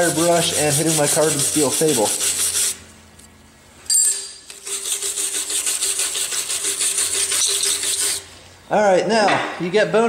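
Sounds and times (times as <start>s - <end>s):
wire brush scrubbing metal plate: 0.0s - 2.8s, 4.5s - 8.3s.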